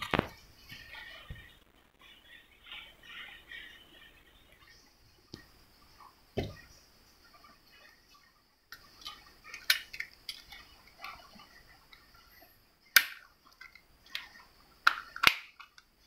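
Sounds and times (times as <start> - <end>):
sharp plastic snaps: 12.9 - 15.9.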